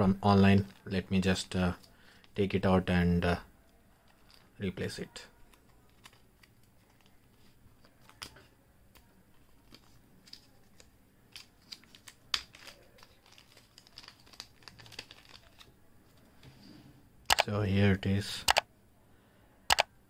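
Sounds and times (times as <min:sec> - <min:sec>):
plastic bag crinkling: 0:04.0 - 0:04.6, 0:09.6 - 0:15.7.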